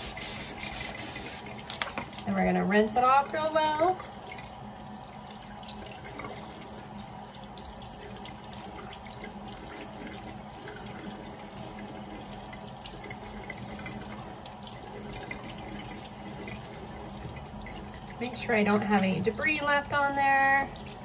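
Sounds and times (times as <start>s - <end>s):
cup rubbed under water: 0.0s - 1.6s
faucet water running: 0.0s - 21.0s.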